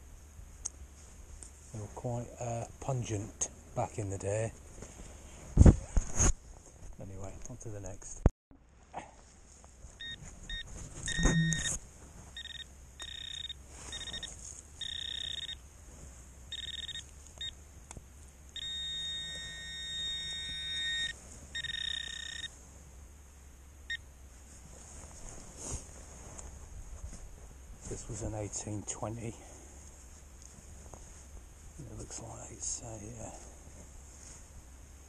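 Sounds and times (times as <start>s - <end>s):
metal detector pinpointer beeping: 10.0s - 11.8s, 12.4s - 15.6s, 16.5s - 17.6s, 18.5s - 22.5s
long unbroken detector tone: 10.0s - 15.7s, 16.4s - 17.7s, 18.4s - 24.2s.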